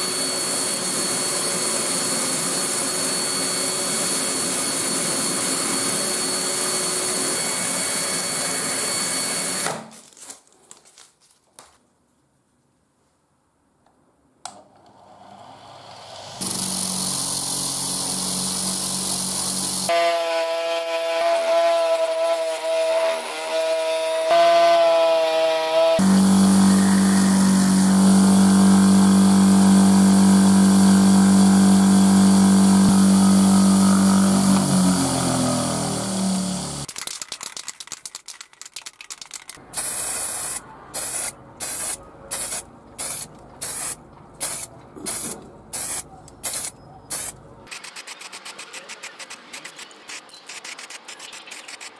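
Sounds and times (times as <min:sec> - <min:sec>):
aerosol spray can hisses: 0:39.8 - 0:47.3.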